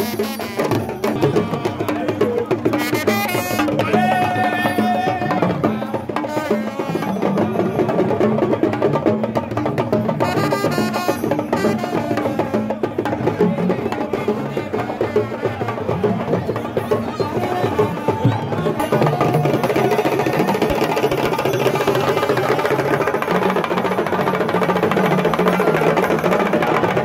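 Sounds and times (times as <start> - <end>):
hand drums playing fast rhythm: 0.0 - 27.0.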